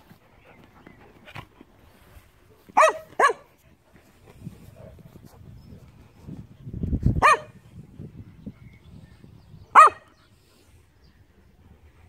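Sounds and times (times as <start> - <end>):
dog barking: 2.8 - 3.5, 7.2 - 7.6, 9.7 - 10.1.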